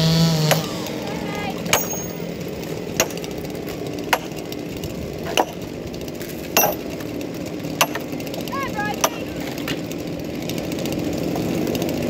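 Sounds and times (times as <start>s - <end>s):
heavy hammer blows on log: 0.3s - 2.3s, 2.9s - 4.5s, 5.2s - 5.6s, 8.9s - 9.4s.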